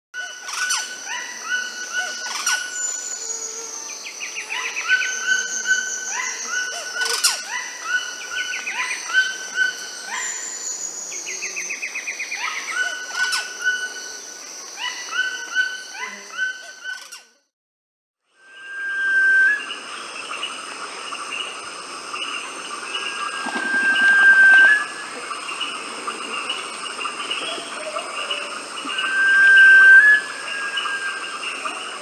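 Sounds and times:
high insect whine: 0.2 - 17.2, 18.4 - 32.0
birds whistling and trilling: 22.9 - 25.0, 26.5 - 32.0.

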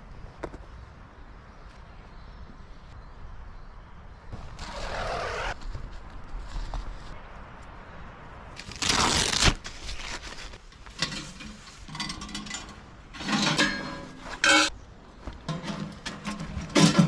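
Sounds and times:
metal stove parts clinking: 10.9 - 14.7, 15.5 - 17.0
metal clank: 11.0 - 14.7, 15.5 - 17.0.

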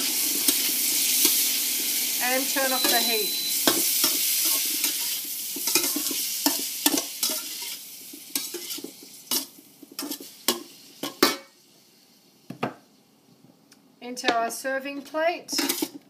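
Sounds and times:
food sizzling in a wok: 0.0 - 12.5, 15.5 - 16.0
metal spatula scraping a wok: 2.8 - 10.3, 15.5 - 16.0.

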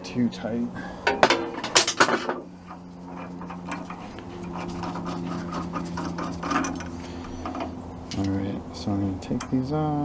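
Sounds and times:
metal tools clanking: 1.0 - 4.7, 5.9 - 8.4.

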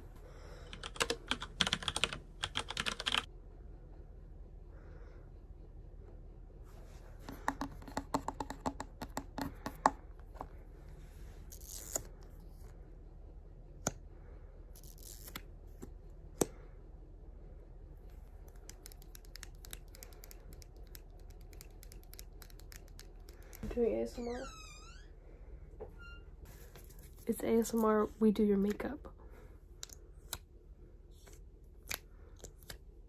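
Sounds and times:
fingernails tapping on plastic: 7.3 - 10.0.

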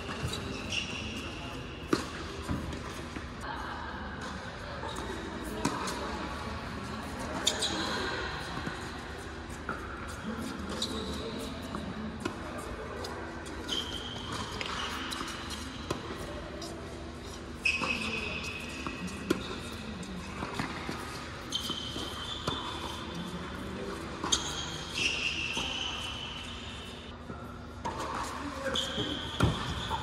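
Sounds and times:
tennis balls bouncing on court: 0.0 - 3.4, 8.4 - 26.2, 27.8 - 30.0.

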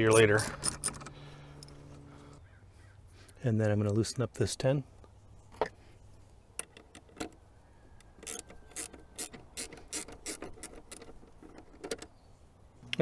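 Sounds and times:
ratcheting wrench clicking: 0.0 - 1.1, 8.2 - 12.1.

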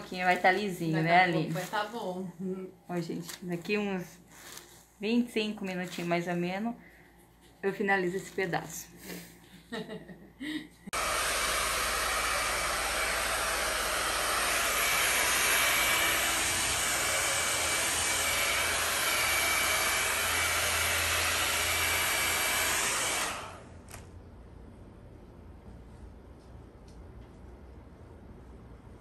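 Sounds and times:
hair dryer blowing: 10.9 - 23.8.

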